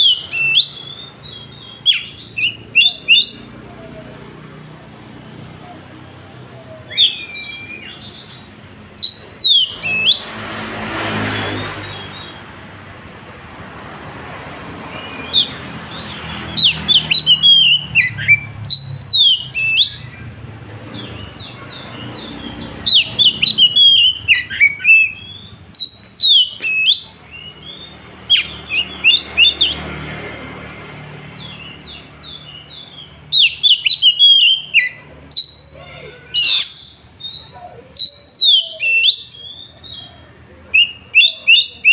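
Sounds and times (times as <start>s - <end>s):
magpie-robin singing whistled phrases: 0.0s - 3.6s, 6.8s - 10.4s, 14.9s - 20.3s, 21.0s - 29.8s, 31.3s - 41.9s.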